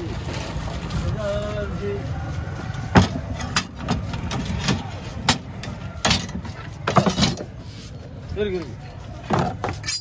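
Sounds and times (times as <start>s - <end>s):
knives knocking and clinking: 9.8s - 10.0s.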